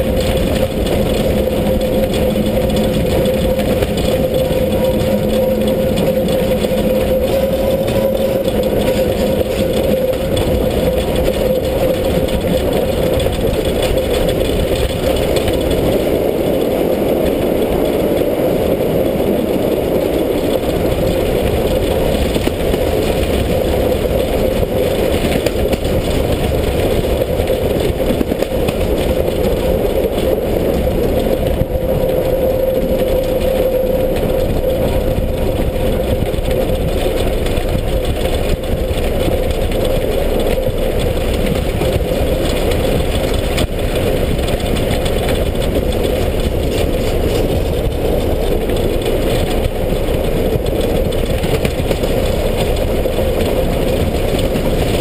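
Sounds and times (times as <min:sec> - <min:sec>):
steady mid-pitched hum: 0:00.0 - 0:55.0
steam locomotive running: 0:00.0 - 0:55.0.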